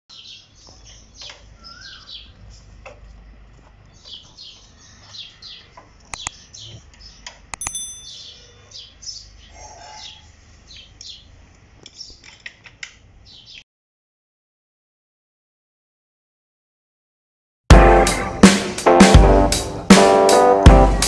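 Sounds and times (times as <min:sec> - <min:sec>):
birds chirping: 0:00.1 - 0:12.3
sharp clicks: 0:06.1 - 0:06.4, 0:07.5 - 0:07.9
bright bell ding: 0:07.6 - 0:08.5.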